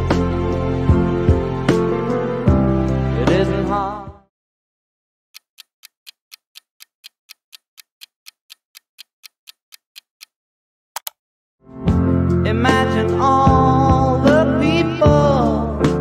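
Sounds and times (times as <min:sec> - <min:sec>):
clock ticking: 0:05.4 - 0:10.4
quick clicks: 0:11.0 - 0:11.2.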